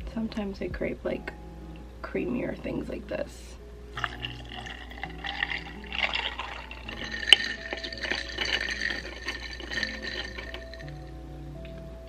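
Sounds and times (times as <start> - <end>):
liquid pouring into cup: 4.0 - 11.1
straw stirring drink: 4.0 - 11.1.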